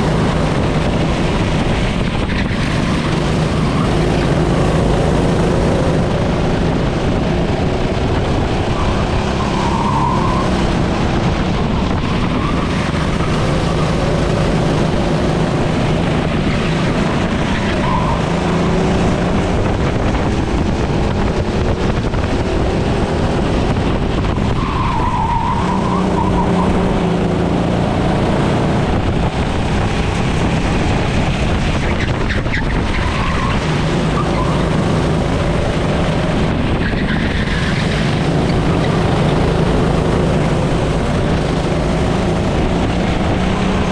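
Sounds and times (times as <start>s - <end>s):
racing engine revving: 0.0s - 43.9s
tyre squeals: 8.8s - 10.6s.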